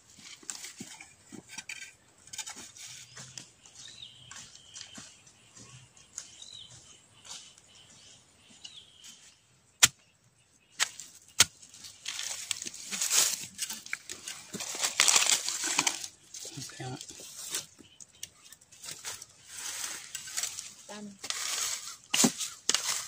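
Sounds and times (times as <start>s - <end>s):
dry leaves crackling and rustling: 11.7s - 17.7s, 18.7s - 23.0s.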